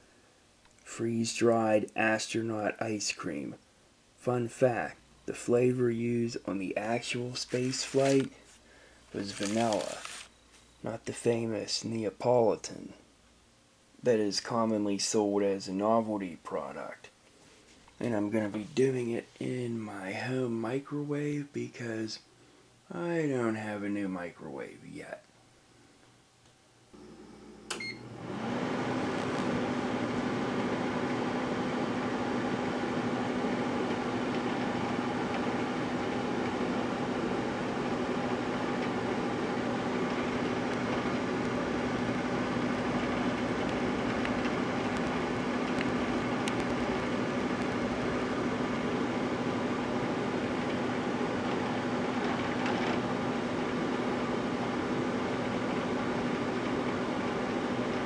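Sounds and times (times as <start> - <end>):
microwave humming: 27.0 - 58.0
microwave beep: 27.7 - 28.2.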